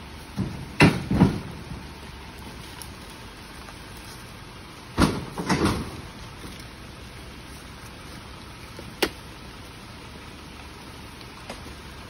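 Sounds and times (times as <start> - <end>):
steady rain falling: 0.0 - 12.0
heavy thuds and rustles: 0.2 - 2.9, 4.9 - 6.6.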